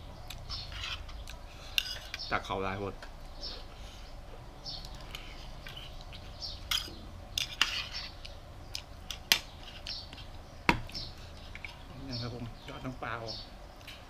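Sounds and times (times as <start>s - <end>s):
cutlery scraping on ceramic plate: 0.5s - 2.2s, 6.7s - 8.2s.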